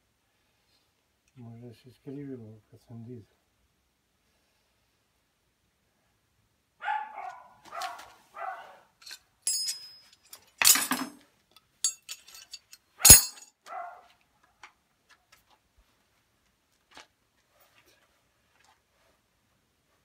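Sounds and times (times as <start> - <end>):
dog barking: 6.8 - 8.9, 13.7 - 14.2
metal clanks and knocks: 9.0 - 11.2, 11.8 - 13.4
sharp metallic bang: 13.0 - 13.4.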